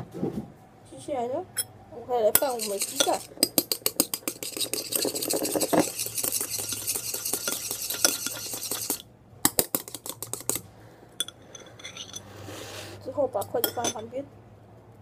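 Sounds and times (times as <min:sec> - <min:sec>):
chopsticks beating egg in bowl: 0:02.3 - 0:10.6.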